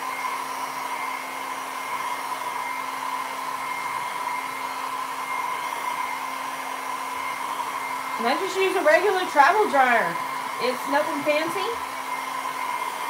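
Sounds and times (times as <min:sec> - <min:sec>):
hair dryer running: 0:00.0 - 0:13.0.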